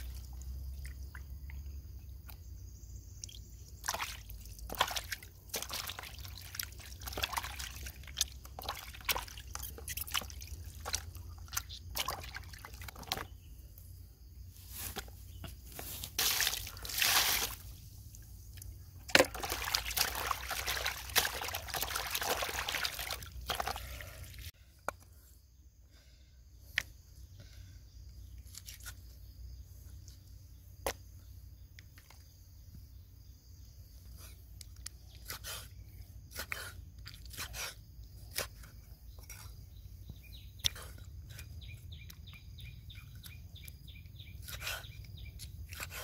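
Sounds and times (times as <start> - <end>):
water splashing in plastic basin: 3.8 - 13.3, 16.2 - 17.6, 19.1 - 24.4.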